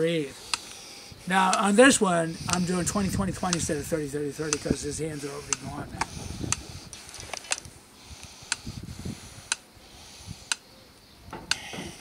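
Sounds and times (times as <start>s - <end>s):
sharp ticking: 0.4s - 7.6s.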